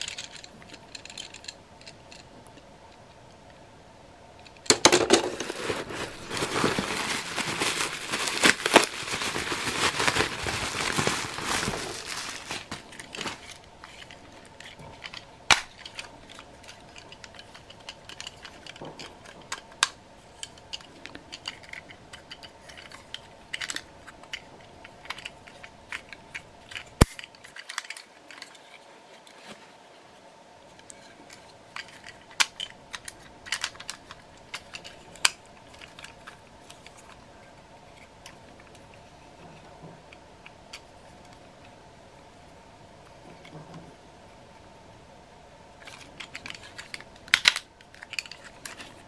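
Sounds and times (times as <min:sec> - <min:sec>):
plastic toy clicking and clattering: 0:00.0 - 0:02.6, 0:04.4 - 0:05.6, 0:12.0 - 0:28.8, 0:30.8 - 0:37.2, 0:45.8 - 0:49.0
faint steady hum: 0:00.0 - 0:49.0.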